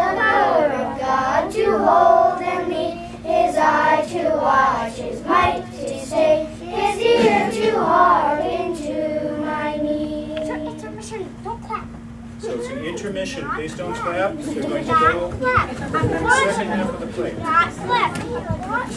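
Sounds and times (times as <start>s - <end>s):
children singing in unison: 0.0s - 10.5s.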